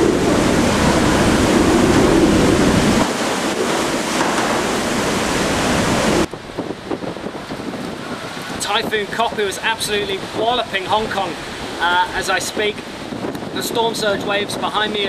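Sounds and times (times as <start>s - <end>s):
driving rain: 0.0s - 15.0s
strong wind: 0.0s - 15.0s
wind buffeting microphone: 0.0s - 15.0s.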